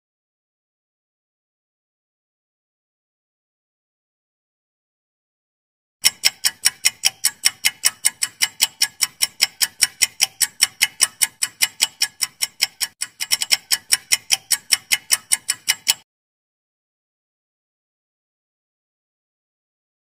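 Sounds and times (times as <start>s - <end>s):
clock ticking: 6.0s - 16.0s.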